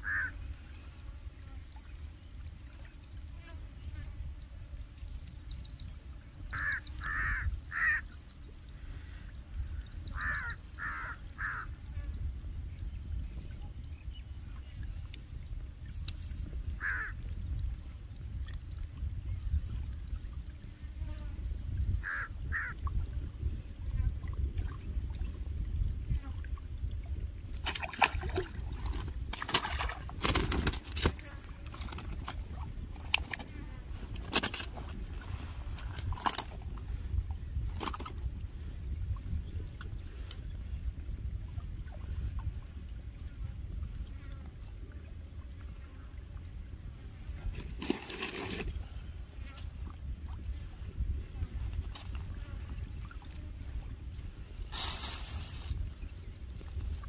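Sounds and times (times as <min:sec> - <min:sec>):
crow cawing: 0:00.0 - 0:00.3, 0:10.2 - 0:11.7, 0:16.8 - 0:17.1
wind buffeting microphone: 0:04.0 - 0:57.0
fish splashing at water surface: 0:27.6 - 0:33.5.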